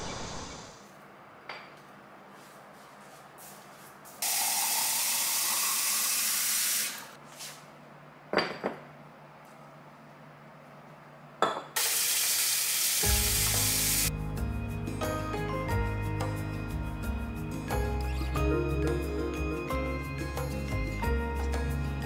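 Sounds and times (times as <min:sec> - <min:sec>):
faucet running into glass: 0:04.2 - 0:07.1
glass knocking on stone countertop: 0:08.3 - 0:08.8
background music: 0:13.0 - 0:22.0.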